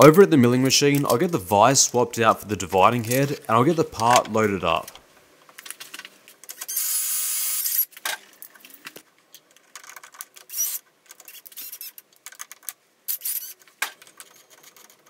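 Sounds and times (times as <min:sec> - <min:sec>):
cordless drill whirring: 0:06.6 - 0:07.9, 0:10.5 - 0:10.8.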